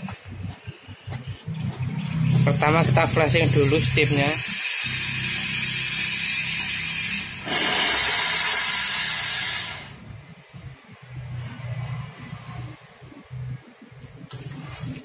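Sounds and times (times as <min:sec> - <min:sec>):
steam wand hissing: 0:03.3 - 0:10.0.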